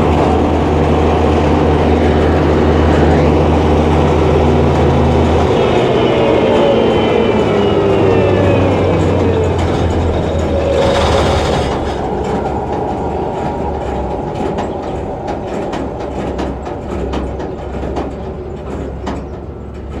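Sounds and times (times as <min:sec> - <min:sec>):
diesel engine droning: 0:00.0 - 0:20.0
sharp clicks and rattles: 0:08.6 - 0:20.0.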